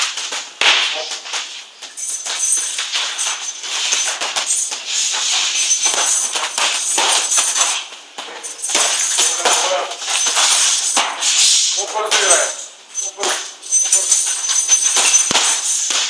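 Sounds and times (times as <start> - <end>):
gloves and kicks slapping: 0.0 - 12.5, 13.2 - 16.0
steady rattling hiss: 0.0 - 16.0.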